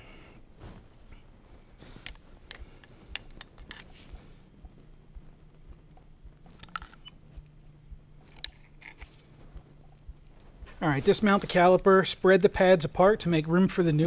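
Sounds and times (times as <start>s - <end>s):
screwdriver clicking and scraping metal: 3.2s - 4.0s, 8.3s - 9.2s.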